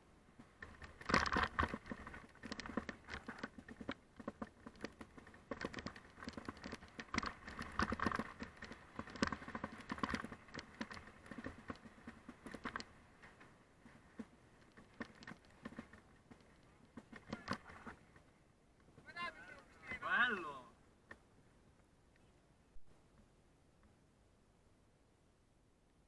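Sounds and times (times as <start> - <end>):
bike rattling over bumps: 0.3 - 20.4
bike tyres crunching over gravel: 0.4 - 18.2.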